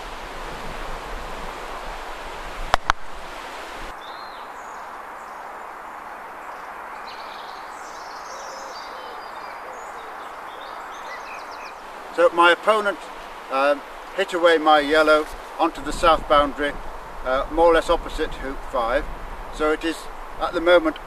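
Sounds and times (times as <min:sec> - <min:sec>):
faint bird chirps: 0:04.0 - 0:11.8.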